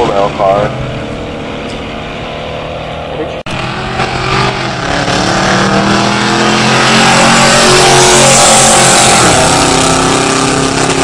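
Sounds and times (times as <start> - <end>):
cars racing at full throttle: 0.0 - 11.0.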